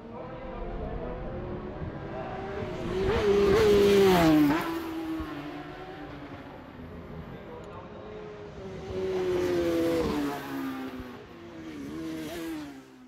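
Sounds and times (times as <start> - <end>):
racing motorcycle passing at speed: 0.1 - 7.3, 8.3 - 13.0.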